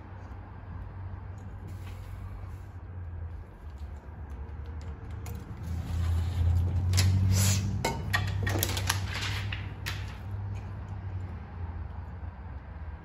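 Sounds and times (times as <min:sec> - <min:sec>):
plastic film crackling and rustling: 0:08.4 - 0:10.3.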